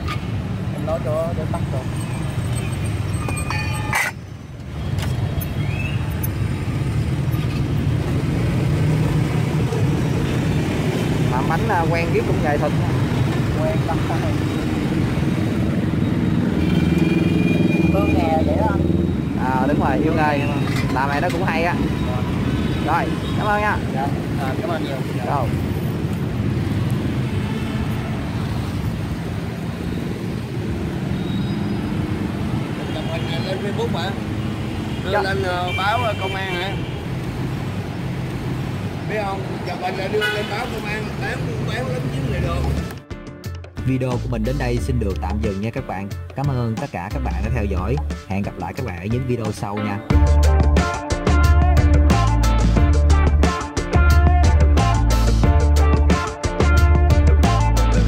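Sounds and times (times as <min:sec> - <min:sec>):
motorbikes passing: 0:00.0 - 0:43.1.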